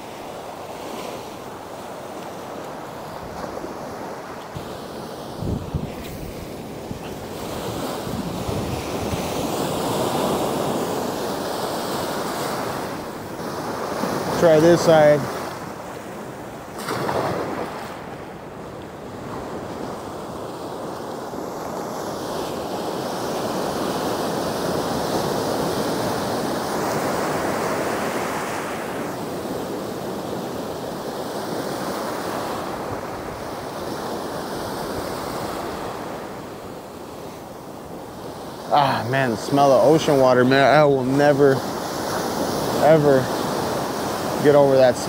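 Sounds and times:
ocean surf breaking on sand: 0:00.0 - 0:45.0
wind on microphone: 0:03.1 - 0:14.4.

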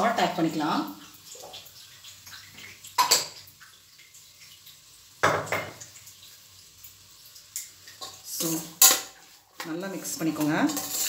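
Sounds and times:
spoon clattering against utensils: 0:10.3 - 0:11.0.

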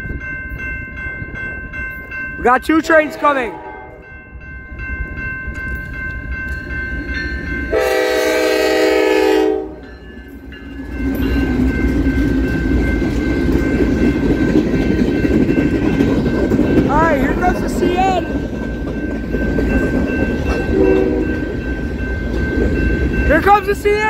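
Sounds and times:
crossing bell ringing: 0:00.0 - 0:24.0
freight train rumbling: 0:00.0 - 0:24.0
train horn blast: 0:03.0 - 0:04.1, 0:07.7 - 0:09.8, 0:20.7 - 0:21.4.

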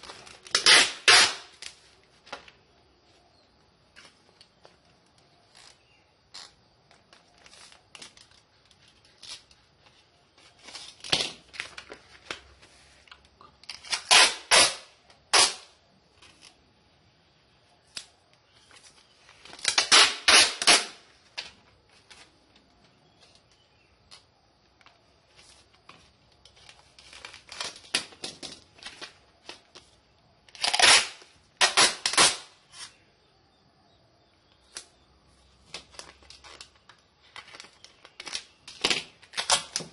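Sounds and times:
packaging tearing: 0:00.0 - 0:01.8, 0:13.6 - 0:15.7, 0:19.4 - 0:21.1, 0:30.5 - 0:32.9, 0:35.7 - 0:39.9
packaging clicks and rustles: 0:35.6 - 0:39.9.

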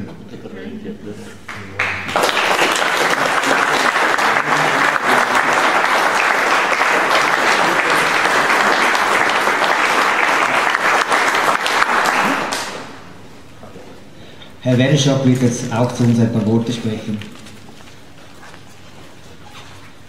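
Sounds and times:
audience applauding: 0:01.5 - 0:13.2.

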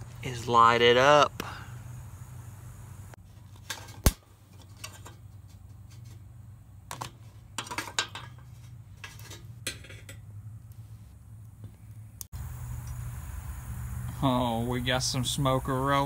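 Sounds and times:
low hum: 0:01.3 - 0:03.2, 0:09.7 - 0:16.0.

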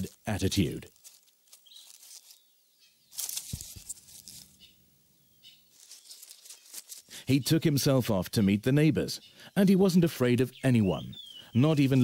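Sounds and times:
brief rustling: 0:00.0 - 0:02.5, 0:03.1 - 0:04.6, 0:05.7 - 0:07.2
faint bird chirps: 0:00.0 - 0:12.0.

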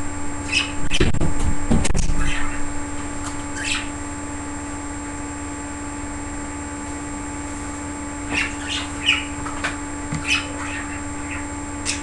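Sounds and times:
budgerigar chirping: 0:00.4 - 0:01.0, 0:02.2 - 0:04.0, 0:08.3 - 0:09.4, 0:10.2 - 0:12.0.

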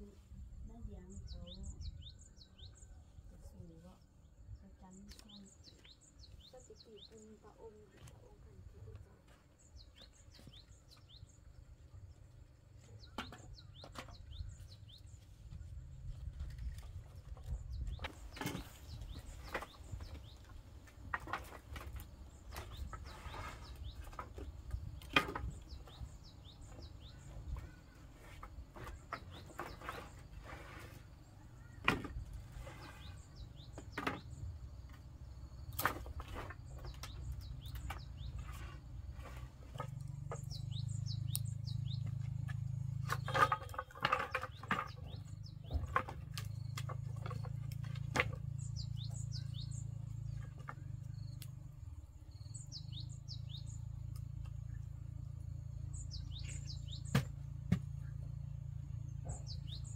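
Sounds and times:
birds chirping: 0:00.0 - 0:59.9
wooden poles clattering: 0:12.9 - 0:51.7.

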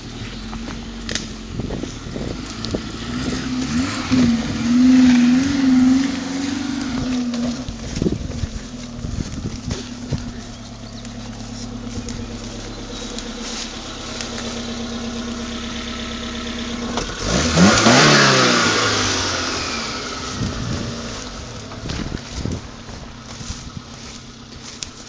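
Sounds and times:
car engine revving: 0:00.0 - 0:25.0.

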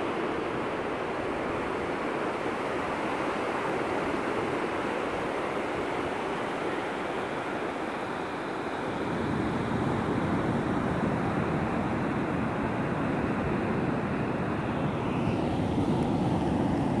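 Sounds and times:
ocean waves breaking on beach: 0:00.0 - 0:17.0.

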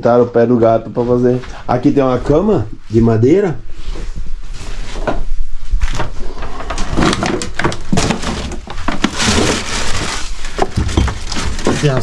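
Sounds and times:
wooden boards knocking and scraping: 0:05.9 - 0:12.0.

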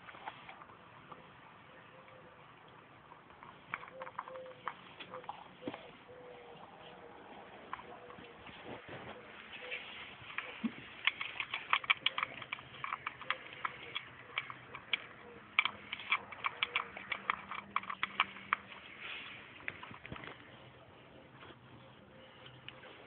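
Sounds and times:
puppy crunching dog biscuits: 0:02.7 - 0:05.8, 0:10.2 - 0:20.8
kibble clicking on metal bowl: 0:10.3 - 0:18.9.

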